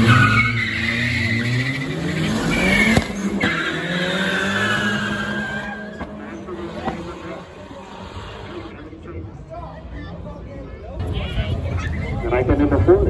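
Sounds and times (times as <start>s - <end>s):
tyre squeal: 0.0s - 6.5s
car engines revving: 0.0s - 13.0s.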